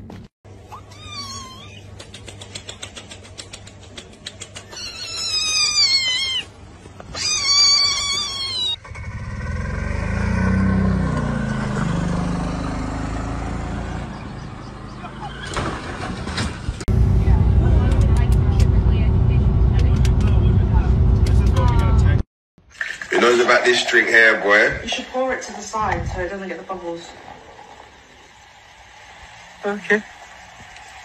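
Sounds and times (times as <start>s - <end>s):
utility vehicle engine rumbling: 8.3s - 22.2s.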